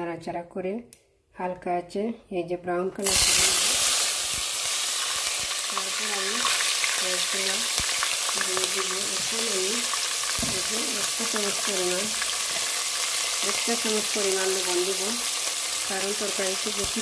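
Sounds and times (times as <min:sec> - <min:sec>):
spices sizzling in hot oil: 0:03.0 - 0:17.0.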